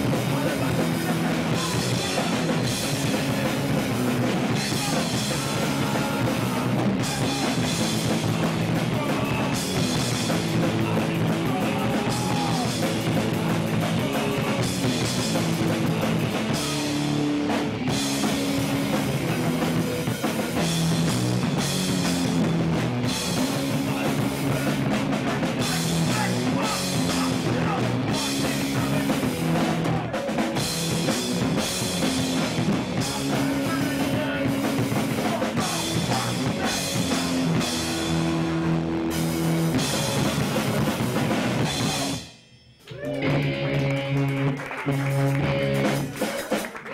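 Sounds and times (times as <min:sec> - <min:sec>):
drum kit with crashing cymbals: 0:00.0 - 0:42.6
electric guitar: 0:00.0 - 0:46.9
shouted vocals: 0:10.6 - 0:15.0, 0:23.5 - 0:30.5, 0:33.0 - 0:38.7, 0:41.6 - 0:42.2, 0:42.8 - 0:43.7.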